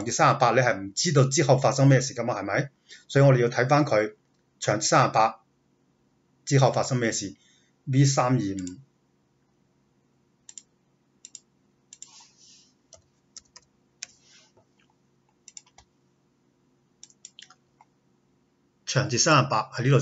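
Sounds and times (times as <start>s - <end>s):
faint steady hum: 0.0s - 20.0s
computer mouse clicks: 10.5s - 12.3s, 12.9s - 15.9s, 17.0s - 17.9s.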